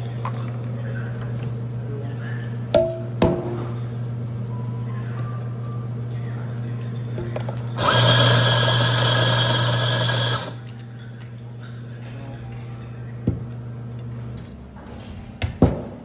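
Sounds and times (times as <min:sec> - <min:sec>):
espresso machine pump humming: 0:07.8 - 0:10.6
hissing whir: 0:07.8 - 0:10.6.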